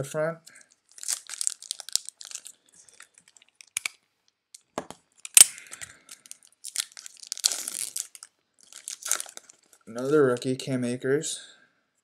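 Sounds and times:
foil wrapper crinkling: 0:00.7 - 0:03.9, 0:05.2 - 0:09.9.

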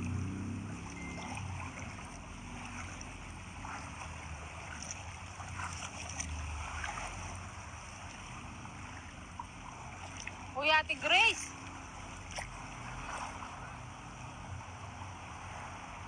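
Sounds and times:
faint splashes: 0:00.0 - 0:16.0
low steady rumble: 0:00.0 - 0:16.0
seawater lapping at shore: 0:00.0 - 0:16.0.

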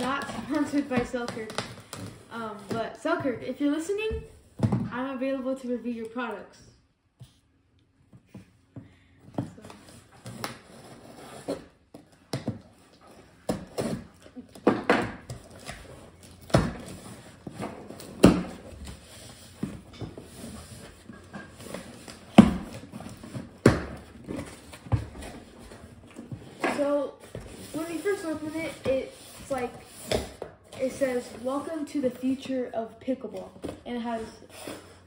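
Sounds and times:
knife cutting cardboard box: 0:13.0 - 0:14.6.

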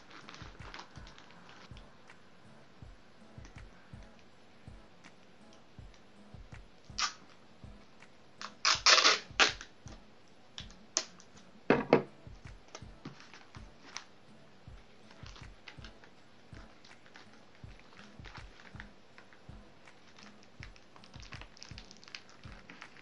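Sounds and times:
wrapping paper crinkling: 0:00.0 - 0:01.8, 0:13.1 - 0:14.1, 0:16.7 - 0:23.0
sticky tape ripping off roll: 0:07.0 - 0:07.2, 0:08.4 - 0:09.7.

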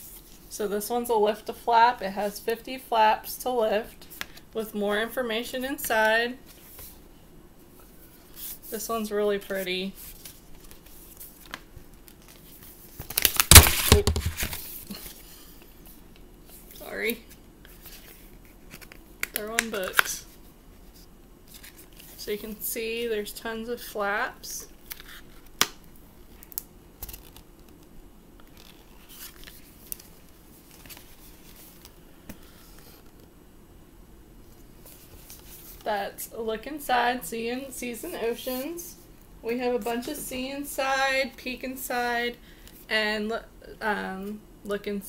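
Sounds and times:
book rustling: 0:10.0 - 0:15.3, 0:20.8 - 0:22.2, 0:26.3 - 0:33.3, 0:34.8 - 0:35.9.

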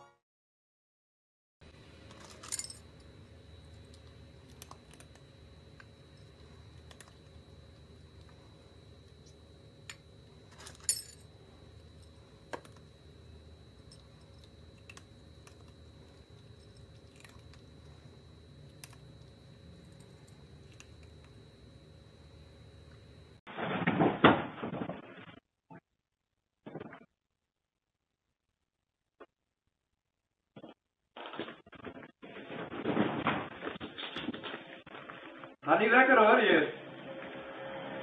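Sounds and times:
steady low hum: 0:01.6 - 0:23.5, 0:31.6 - 0:38.0
cat crunching dry kibble: 0:13.9 - 0:17.9.

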